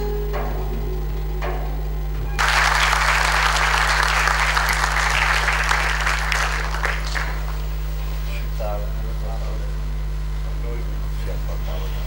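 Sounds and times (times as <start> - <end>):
audience applauding: 2.4 - 7.9.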